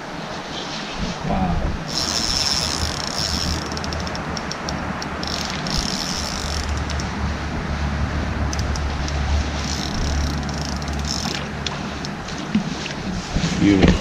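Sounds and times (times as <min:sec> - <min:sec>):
wind rumbling on microphone: 0:00.0 - 0:14.0
river flowing: 0:01.8 - 0:14.0
fishing reel whirring and clicking: 0:01.9 - 0:07.1, 0:08.5 - 0:12.2.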